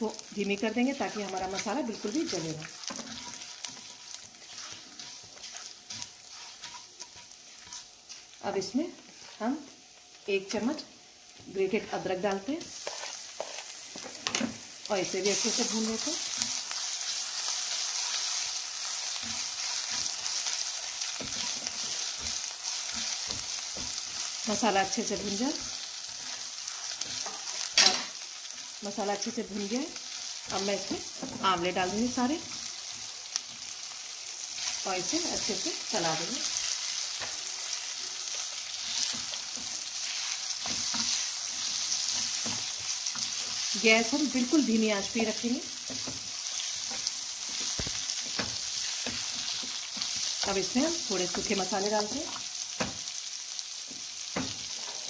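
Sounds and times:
seeds sizzling in hot oil: 0.0s - 55.0s
spatula scraping a metal pan: 2.8s - 8.3s, 12.7s - 13.8s.

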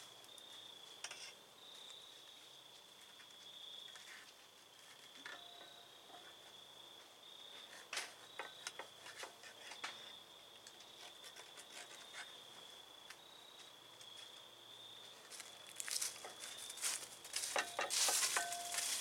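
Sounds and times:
faint high-pitched tone: 5.2s - 6.3s, 17.6s - 19.0s.

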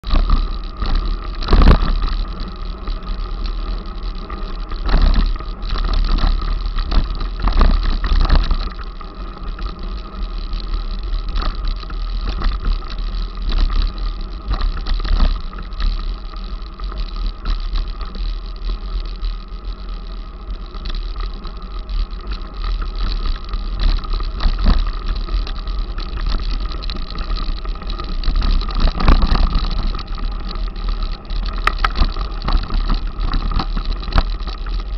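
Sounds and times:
bike knocks and rattles: 0.0s - 10.2s, 22.3s - 34.9s
wind rumble on microphone: 0.0s - 34.9s.

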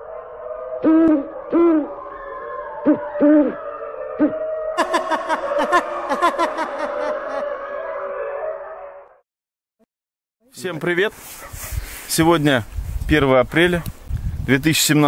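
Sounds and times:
owl hoots: 0.8s - 1.9s.

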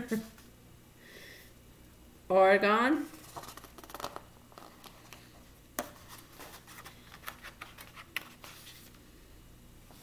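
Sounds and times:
page turning: 3.2s - 5.2s, 5.8s - 9.0s
paper taps and rustles: 3.2s - 5.2s, 5.8s - 8.8s.

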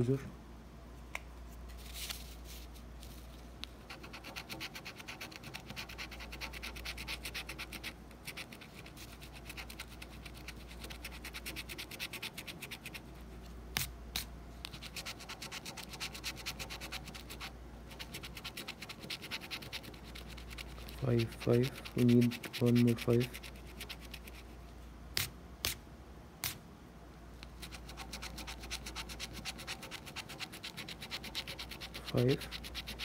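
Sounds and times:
coin scratching lottery ticket: 3.9s - 13.0s, 14.8s - 24.4s, 27.6s - 33.0s.

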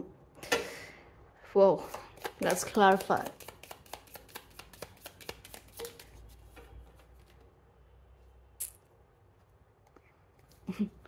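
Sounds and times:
cards being shuffled: 2.2s - 7.4s.

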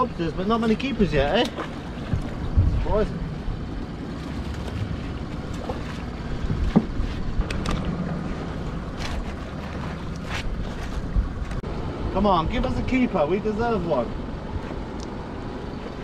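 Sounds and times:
sea noise: 0.0s - 16.0s
wind: 0.0s - 16.0s
low rumble: 1.5s - 13.0s.

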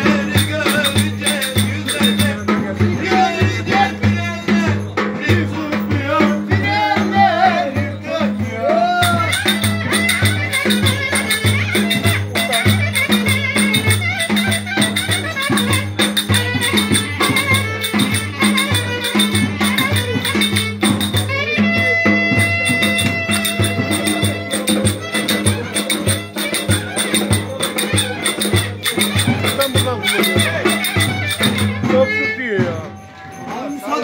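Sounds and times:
drum beat: 0.0s - 34.0s
folk dance melody: 0.0s - 34.0s
rattling hand percussion: 0.0s - 34.0s.

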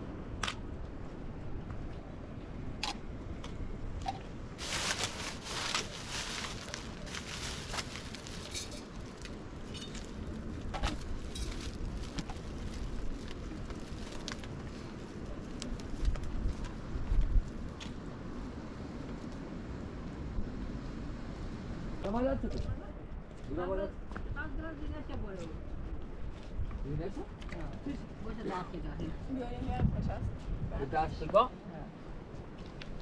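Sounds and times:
wind rumble: 0.0s - 31.3s
light clicks and crunches: 2.8s - 18.0s.

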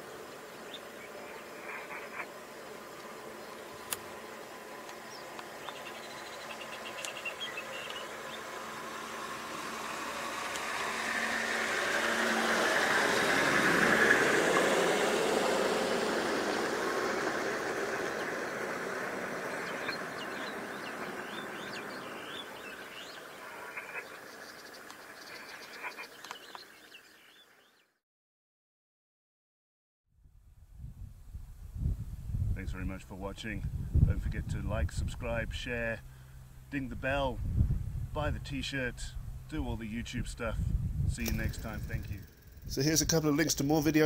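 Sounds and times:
insects chirping: 0.0s - 27.8s, 41.2s - 43.0s
birds chirping: 0.0s - 27.9s
vehicle passing by: 1.2s - 26.1s.

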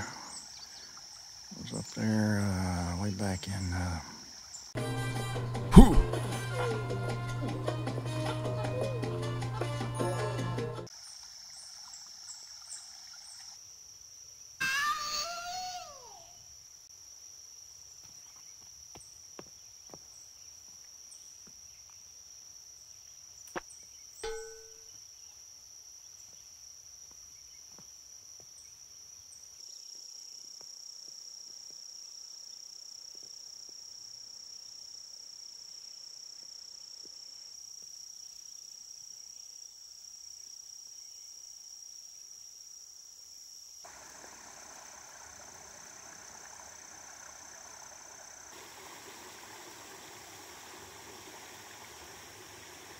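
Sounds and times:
insect chorus droning: 0.0s - 4.8s, 10.9s - 52.9s
trickling creek water: 0.0s - 4.8s, 10.8s - 14.0s, 43.8s - 52.9s.

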